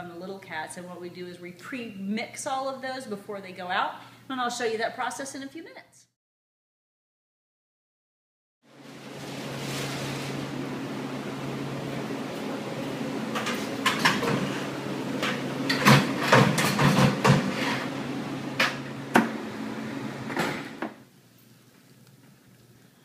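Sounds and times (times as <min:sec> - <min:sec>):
steady machine hum: 0:08.7 - 0:21.3.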